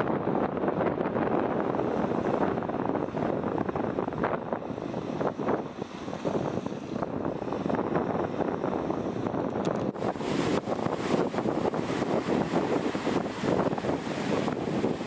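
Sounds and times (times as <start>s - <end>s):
wind buffeting microphone: 0.0s - 15.0s
waves breaking on rocky shore: 9.9s - 15.0s.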